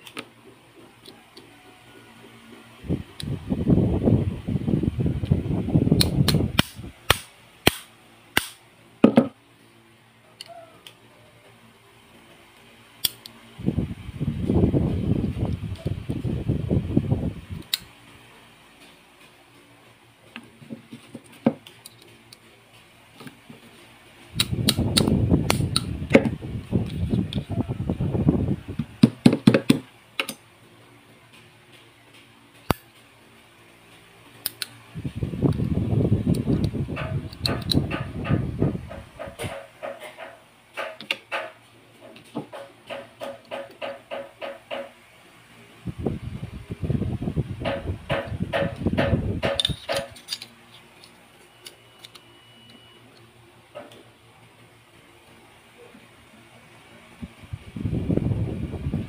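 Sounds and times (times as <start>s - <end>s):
metallic clicks of pistol parts: 13.0s - 13.3s, 49.6s - 52.2s.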